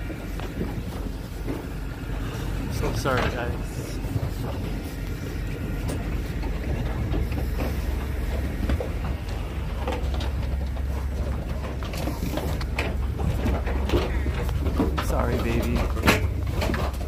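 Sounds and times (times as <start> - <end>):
knocks and clatter: 0.0 - 17.0
truck engine idling: 0.0 - 17.0.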